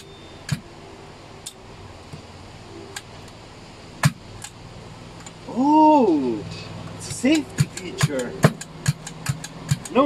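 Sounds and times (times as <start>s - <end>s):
faint clicks: 2.9s - 3.4s.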